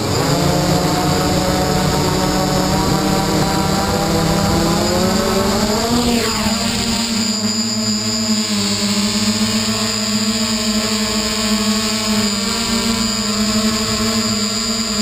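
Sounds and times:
multi-rotor drone buzz: 0.0s - 15.0s.

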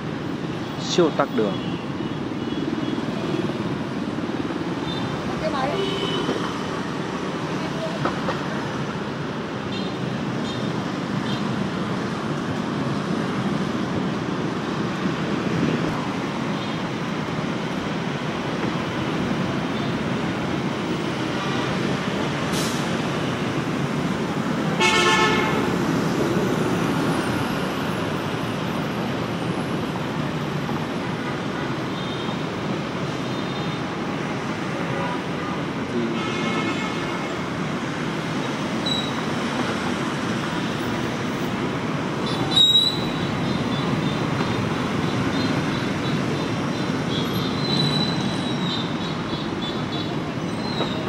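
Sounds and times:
street traffic of motorbikes and cars: 0.0s - 51.0s
vehicle horn toot: 24.8s - 25.6s.

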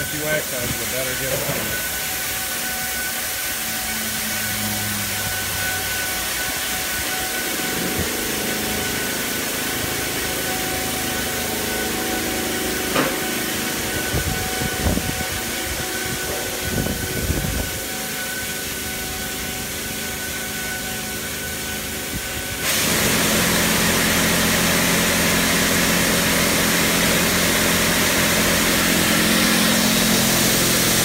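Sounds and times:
pump whining: 0.0s - 31.0s
hiss of water spray: 22.6s - 31.0s.

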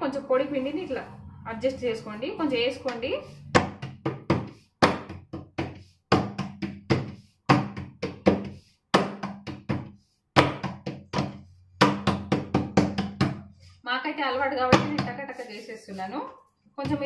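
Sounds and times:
hands patting dough on board: 3.6s - 13.4s.

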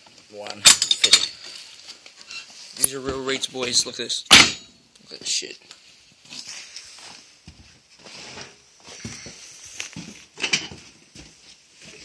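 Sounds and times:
weight stack clank: 4.3s - 4.7s.

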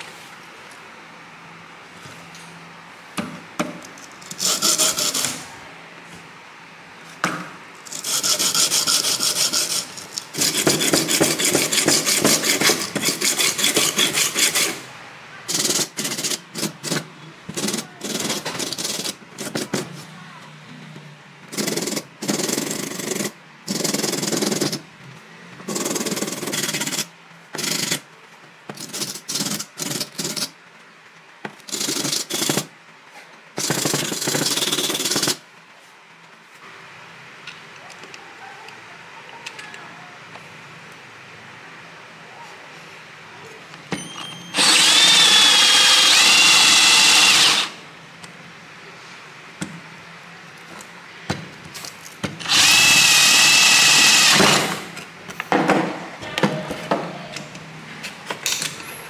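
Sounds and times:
sandpaper scraping plastic: 4.3s - 5.4s, 7.9s - 14.8s.

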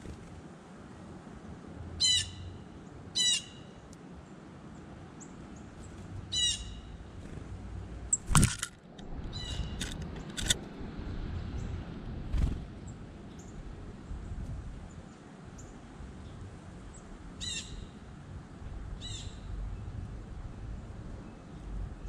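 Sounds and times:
wings fluttering: 7.2s - 10.6s, 12.2s - 12.9s.

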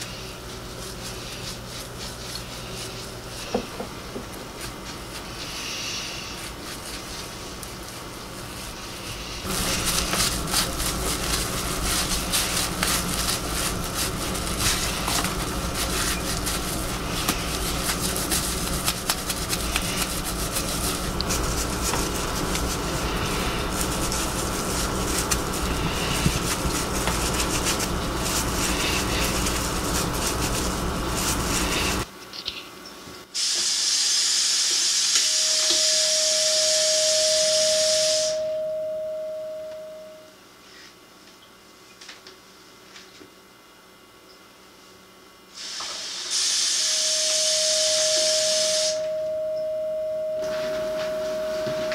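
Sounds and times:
brush scrubbing a mug: 0.0s - 32.1s
steady water hiss: 33.4s - 38.4s, 45.5s - 49.0s
steady high tone: 35.2s - 40.4s, 46.8s - 51.9s.

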